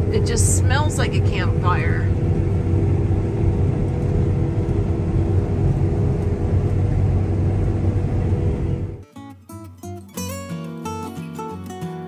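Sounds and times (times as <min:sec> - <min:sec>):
diesel engine droning: 0:00.0 - 0:09.0.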